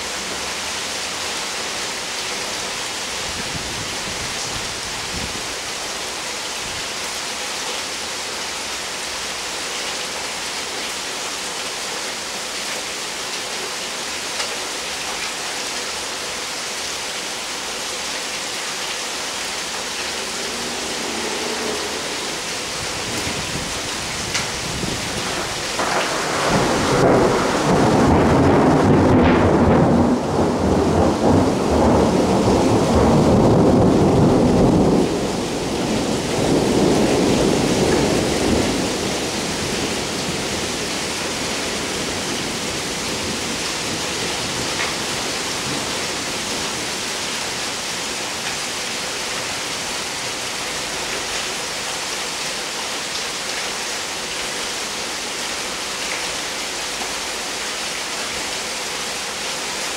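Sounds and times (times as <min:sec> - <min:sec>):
steady rain: 0:00.0 - 0:59.9
rolling thunder: 0:19.8 - 0:46.6.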